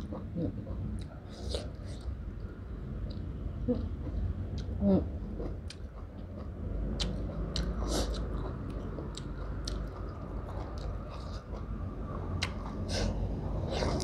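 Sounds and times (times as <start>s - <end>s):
person chewing with wet mouth clicks: 7.0s - 11.7s, 12.4s - 12.7s.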